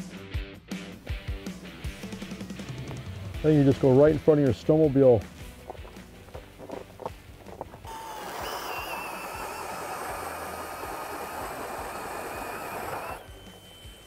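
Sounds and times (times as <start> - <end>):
power ice auger whining: 7.0 - 14.0
drill bit cutting through ice: 7.8 - 14.0.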